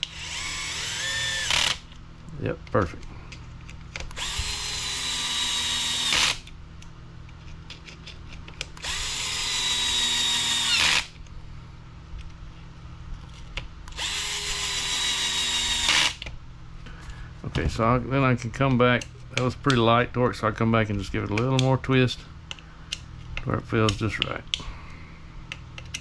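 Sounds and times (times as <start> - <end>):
cordless screwdriver motor whine: 0.0 - 1.8, 4.1 - 6.5, 8.8 - 11.2, 13.9 - 16.2.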